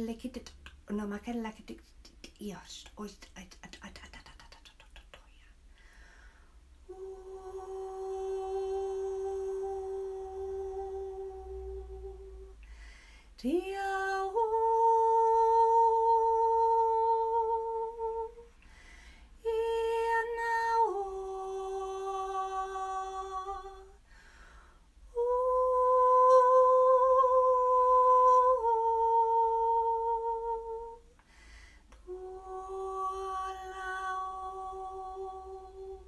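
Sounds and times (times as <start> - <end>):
breaths: 5.7 - 6.7, 12.6 - 13.4, 18.6 - 19.4, 24.0 - 25.0, 31.2 - 32.0.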